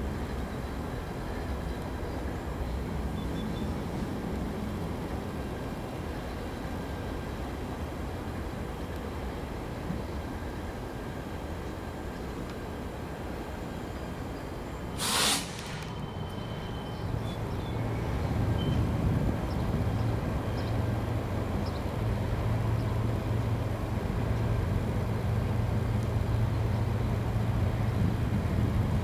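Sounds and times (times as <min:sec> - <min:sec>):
distant diesel locomotive engine: 0:00.0 - 0:29.0
air hiss: 0:14.9 - 0:16.1.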